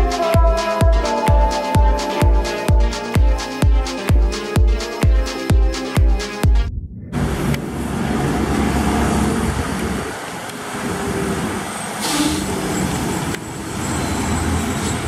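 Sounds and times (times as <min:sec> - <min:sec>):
truck diesel engine rumbling: 0:00.0 - 0:15.0
tyres hissing on wet road: 0:07.7 - 0:15.0.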